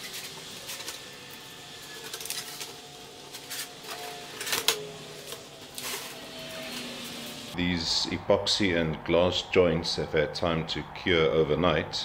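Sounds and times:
plastic sheeting peeling and crackling: 0.0s - 7.6s.

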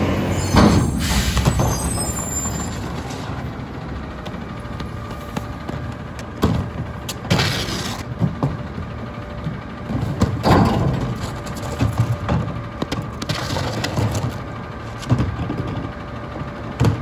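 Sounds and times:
truck engine idling: 0.0s - 17.0s
trash spilling clatter: 0.2s - 3.4s, 9.8s - 16.0s
plastic carts banging on metal: 9.9s - 16.0s.

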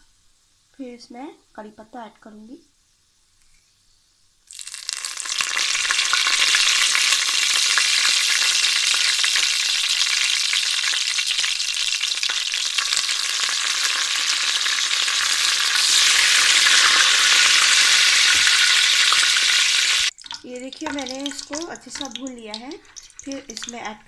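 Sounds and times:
spices sizzling in hot oil: 4.4s - 24.0s.

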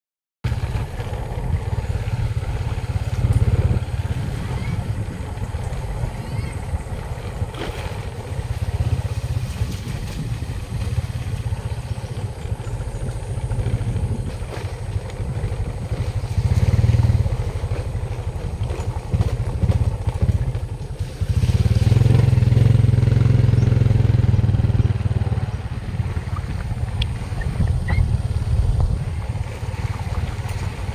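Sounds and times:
motorcycle engine rumble: 0.4s - 30.9s.

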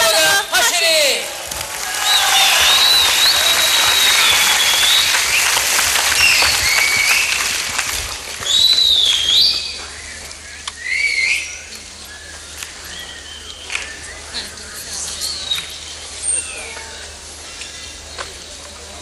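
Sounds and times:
audience applauding and cheering: 1.3s - 9.4s
shrill whistles: 2.0s - 7.5s, 8.4s - 9.8s.

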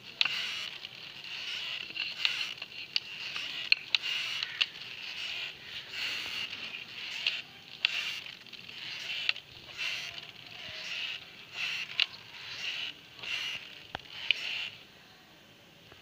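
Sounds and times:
hand-cranked press scraping: 0.0s - 14.7s
sharp clicks: 0.0s - 14.8s.

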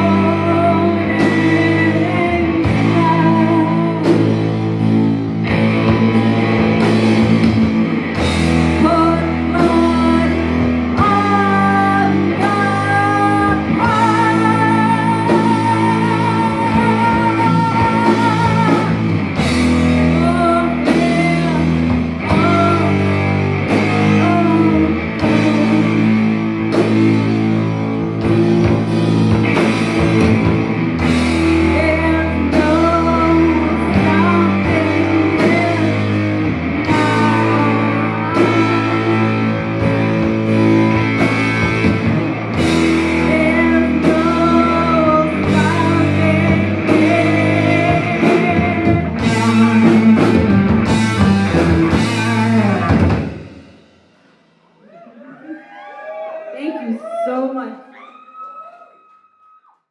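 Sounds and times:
woman singing: 0.0s - 4.8s, 8.7s - 26.4s, 28.2s - 29.6s, 31.2s - 53.1s
electric guitar: 0.0s - 54.1s
bass guitar: 0.0s - 56.5s
drums: 0.0s - 58.4s.

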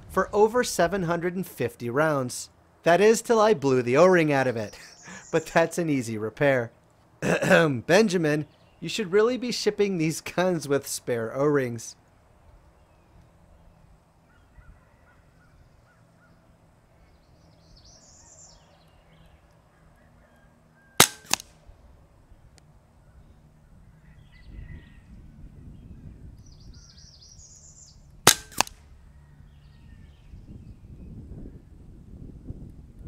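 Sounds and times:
air rifle shot crack: 21.0s - 21.7s, 28.2s - 28.9s.

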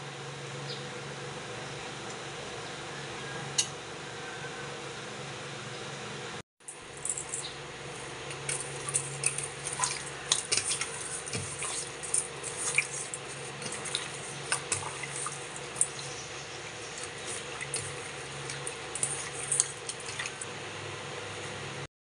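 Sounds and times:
steady low hum: 0.0s - 21.9s
wet squishes of kneaded meat: 8.0s - 20.5s.

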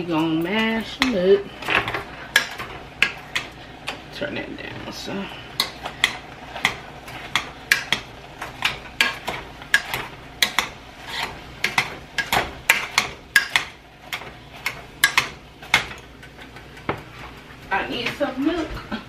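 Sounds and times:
potato masher clacking in pot: 5.6s - 16.3s.

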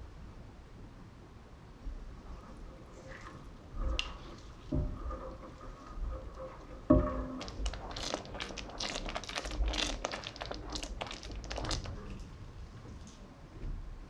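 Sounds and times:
thick dhal stirred with wet plops: 1.9s - 12.2s.

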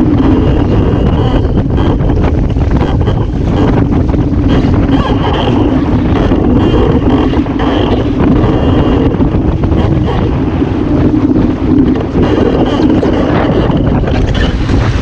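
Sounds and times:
water rushing past hull: 0.0s - 15.0s
wind buffeting microphone: 0.0s - 15.0s.

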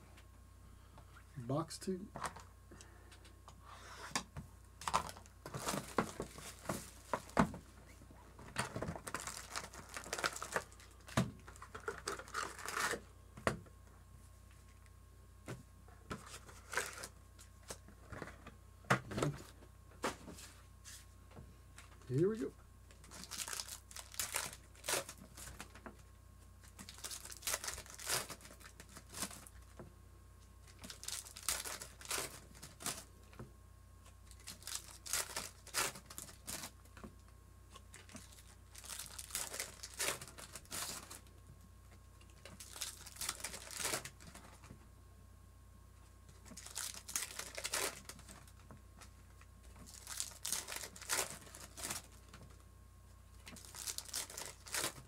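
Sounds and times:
plastic wrappers crinkling and tearing: 4.8s - 7.5s, 8.5s - 13.0s, 16.2s - 17.8s, 22.9s - 26.0s, 26.6s - 29.8s, 30.6s - 33.4s, 34.2s - 37.1s, 37.8s - 41.3s, 42.2s - 44.7s, 46.3s - 52.6s, 53.4s - 55.0s.

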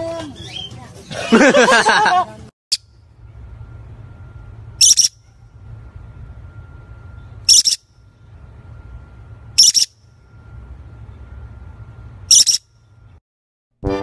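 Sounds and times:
low background hum: 0.0s - 13.2s
parrot squawking: 4.8s - 5.2s, 7.5s - 7.8s, 9.6s - 10.0s, 12.3s - 12.6s.

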